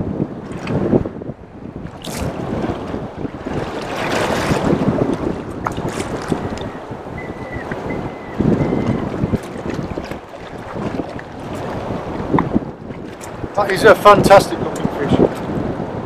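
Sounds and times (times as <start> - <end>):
water slapping around boat: 0.0 - 16.0
wind buffeting microphone: 0.0 - 16.0
sharp splashes: 1.9 - 4.9.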